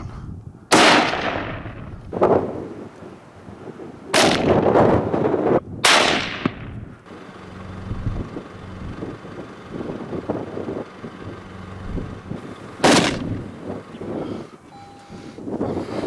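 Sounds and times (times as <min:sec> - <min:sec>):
rifle shots with echo: 0:00.7 - 0:01.9, 0:04.1 - 0:04.8, 0:05.8 - 0:06.8, 0:12.8 - 0:13.3.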